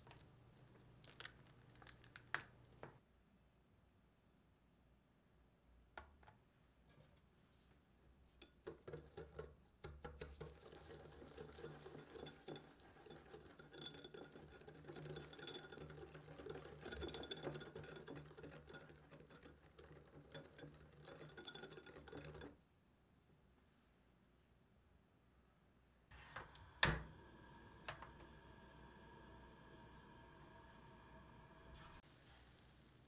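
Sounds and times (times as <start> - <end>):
whisk clinking and scraping glass bowl: 10.2 - 22.6.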